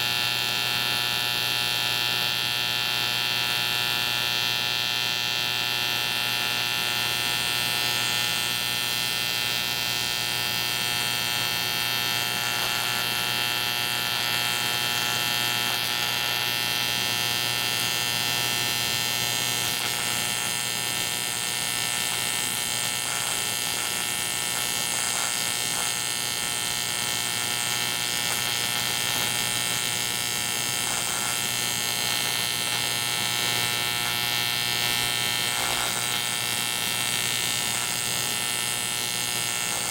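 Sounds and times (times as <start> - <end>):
mains hum: 0.0 - 39.9
welding arc buzzing: 0.0 - 39.9.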